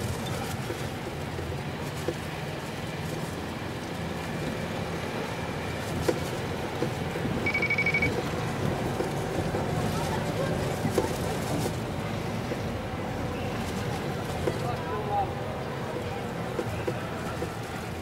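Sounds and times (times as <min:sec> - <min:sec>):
engine and road rumble: 0:00.0 - 0:18.0
brief high-pitched tone: 0:07.4 - 0:08.2.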